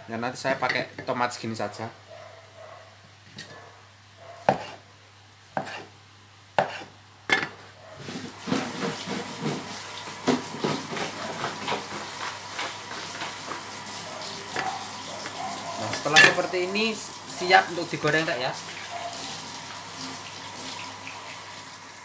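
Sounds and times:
cleaver chopping on wooden board: 4.4 - 4.8, 5.6 - 5.9, 6.6 - 6.9.

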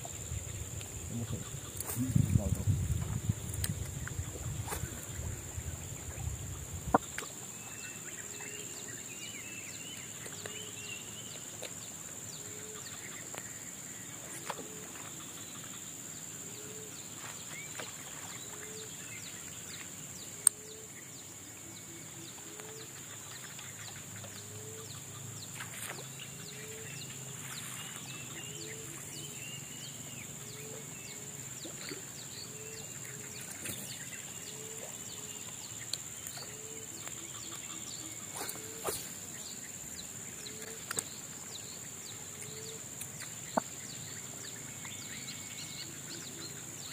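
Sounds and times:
birds chirping: 22.4 - 46.9.

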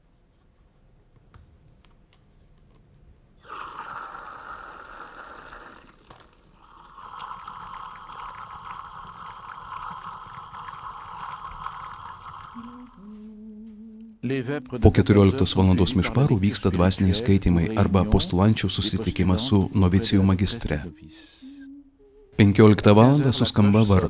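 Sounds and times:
cider pouring into glass: 3.4 - 13.0.

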